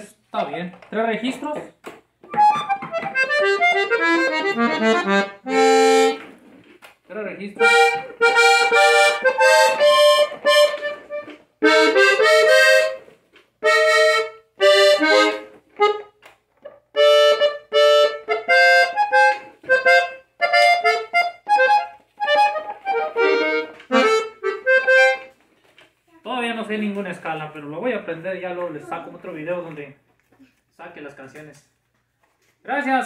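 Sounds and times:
button accordion chords: 2.3 - 6.4, 7.6 - 16.2, 16.9 - 25.4.

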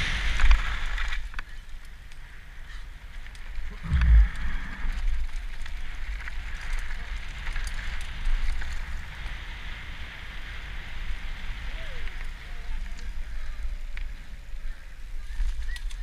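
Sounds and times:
bike rattles and clicks: 0.0 - 16.0
bike tyres on gravel: 0.0 - 16.0
wind on microphone: 3.7 - 6.0.

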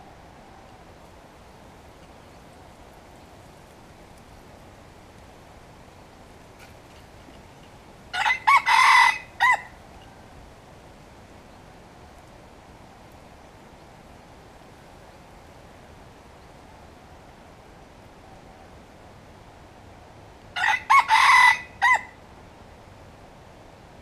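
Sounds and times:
faint background hiss: 0.0 - 24.0
rooster crowing: 8.1 - 9.8, 20.6 - 22.2.

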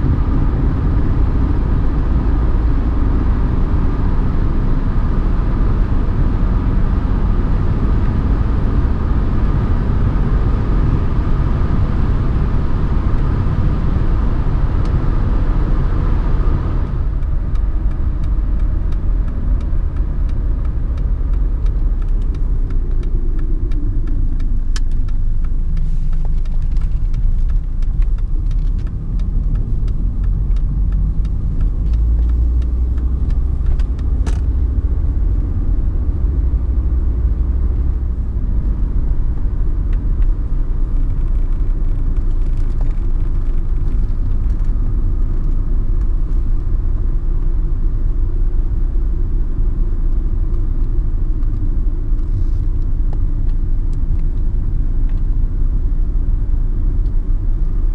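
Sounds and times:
diesel engine running: 0.0 - 42.2
road noise: 0.0 - 57.9.

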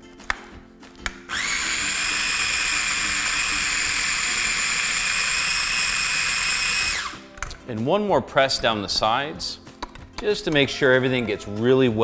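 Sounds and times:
food chopper motor whining: 1.3 - 7.2.

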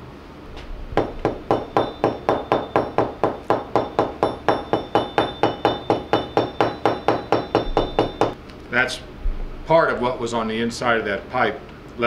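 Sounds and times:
metal pipe knocking on workbench: 1.0 - 8.4.

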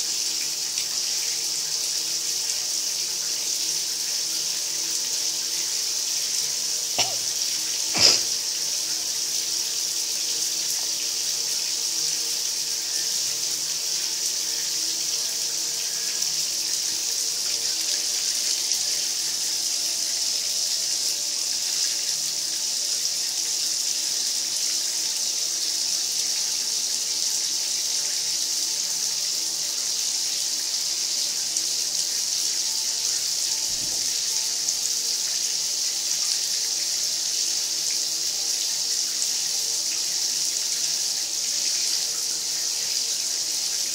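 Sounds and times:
faucet running into bathtub: 0.2 - 23.6, 30.2 - 43.9
sharp knocks: 7.0 - 7.3.

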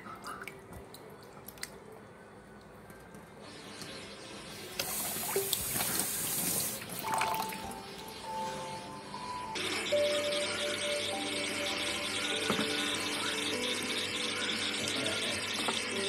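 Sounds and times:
tap water rushing: 4.7 - 7.8.

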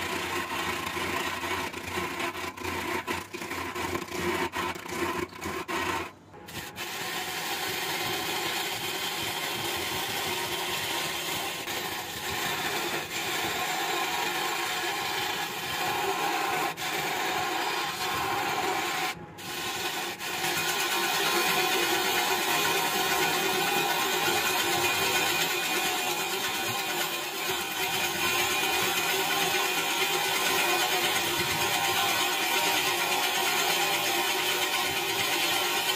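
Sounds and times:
lathe gouge shaving wood: 0.0 - 35.9.

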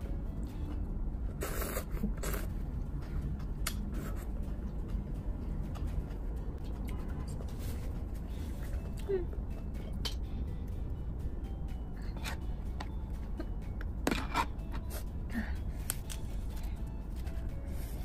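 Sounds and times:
steady low hum: 0.0 - 18.0
person slurping food: 1.3 - 2.5.

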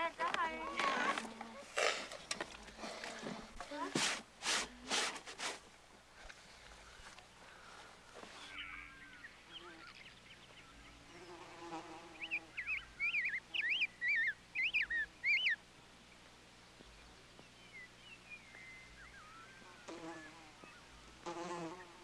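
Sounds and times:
low buzzy bird call: 6.8 - 16.2, 16.8 - 22.0
songbird warbling: 12.1 - 15.6, 17.4 - 21.1.

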